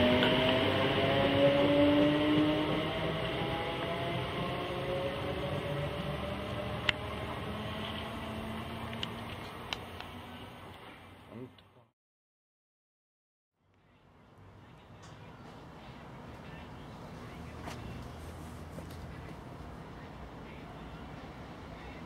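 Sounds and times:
electric train motor whine: 0:00.0 - 0:11.1
rail rumble: 0:00.0 - 0:11.2
faint trackside background noise: 0:13.6 - 0:22.0.

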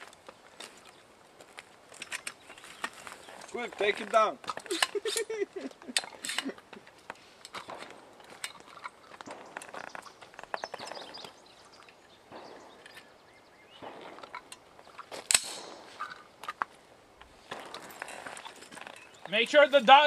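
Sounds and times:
sharp loud gunshot crack: 0:12.3 - 0:12.8, 0:13.8 - 0:14.3, 0:15.3 - 0:16.0.

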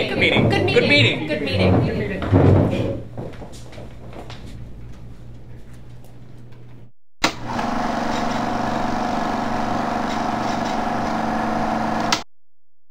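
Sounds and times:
faint low room hum: 0:00.0 - 0:06.9
film projector whirring: 0:07.2 - 0:12.2.

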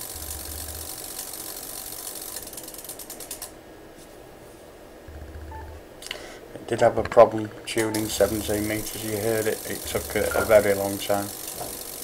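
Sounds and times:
relays clicking rapidly: 0:00.0 - 0:03.6, 0:07.8 - 0:12.0.

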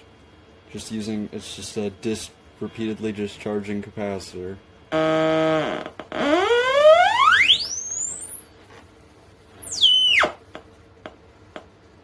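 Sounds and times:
oscillator sweeping buzz to whine: 0:04.9 - 0:10.4.

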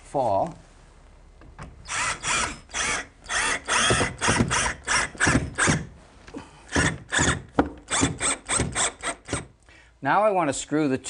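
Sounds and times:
cordless drill driving a screw: 0:01.8 - 0:05.9, 0:06.7 - 0:09.5.

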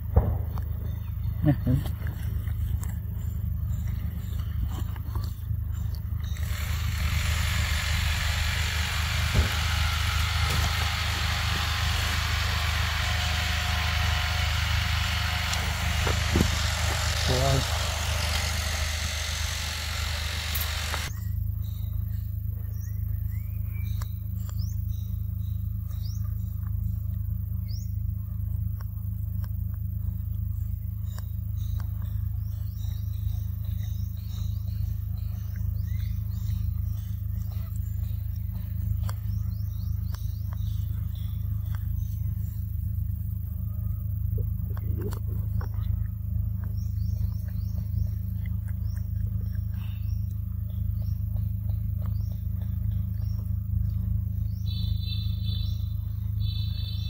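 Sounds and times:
low rumble: 0:00.0 - 0:21.1
birds chirping: 0:00.0 - 0:28.1, 0:29.8 - 0:57.0
low hum: 0:00.0 - 0:57.0
sharp clicks: 0:06.3 - 0:21.1.

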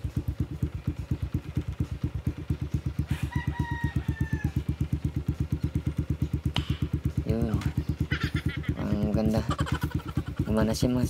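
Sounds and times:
motorcycle engine idling: 0:00.0 - 0:11.0
rooster crowing: 0:03.1 - 0:04.8.

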